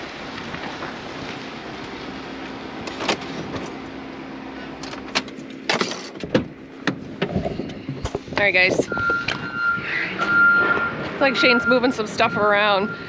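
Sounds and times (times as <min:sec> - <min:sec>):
keys jingling: 0:04.8 - 0:06.2.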